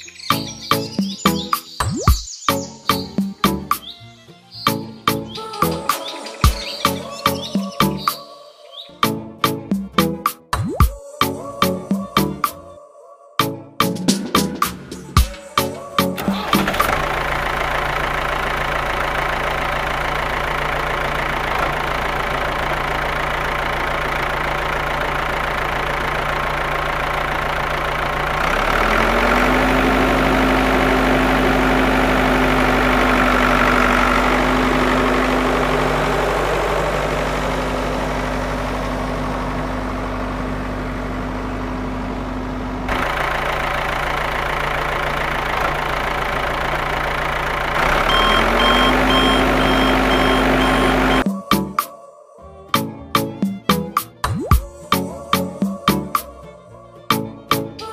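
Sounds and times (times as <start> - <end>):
tractor engine idling: 14.6 - 51.9, 54.8 - 57.9.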